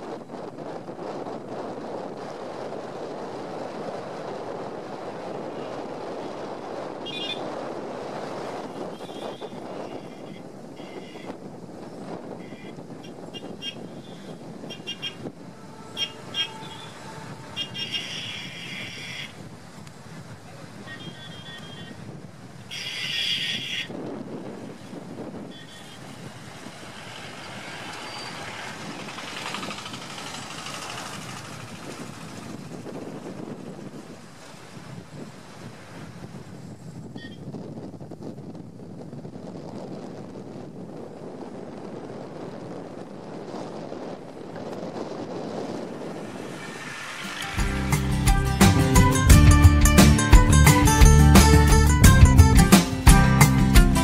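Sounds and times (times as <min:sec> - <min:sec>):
wind on microphone: 0:00.0 - 0:54.0
short high-pitched toot: 0:14.7 - 0:18.5
sea surf: 0:33.2 - 0:36.3, 0:45.6 - 0:54.0.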